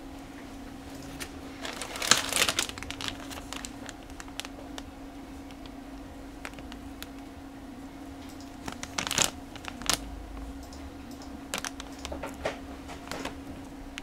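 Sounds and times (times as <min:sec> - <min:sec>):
low hum: 0:00.0 - 0:14.0
plastic bags crinkling: 0:01.0 - 0:07.2, 0:08.5 - 0:10.1, 0:11.5 - 0:14.0.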